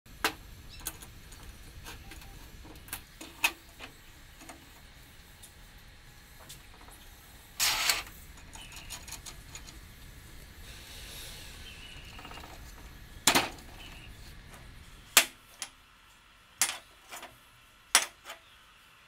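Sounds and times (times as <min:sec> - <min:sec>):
steel tube scraping: 0:07.6 - 0:09.8, 0:10.6 - 0:15.0.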